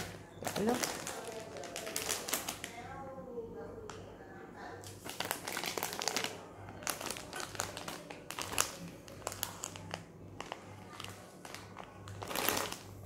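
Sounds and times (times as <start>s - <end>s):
plastic bag crinkling: 0.0s - 2.8s, 4.8s - 13.0s.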